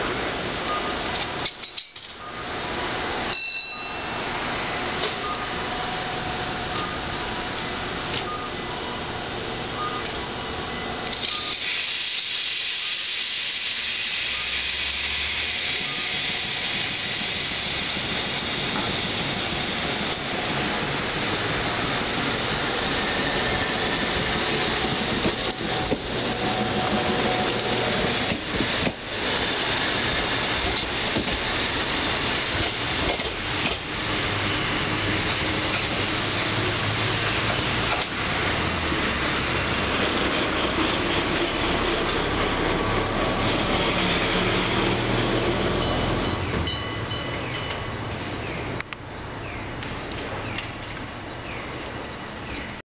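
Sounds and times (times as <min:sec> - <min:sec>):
train car clunks: 0:04.9 - 0:05.6, 0:24.4 - 0:29.4, 0:30.2 - 0:38.3, 0:45.3 - 0:48.0
air hissing: 0:11.2 - 0:38.6.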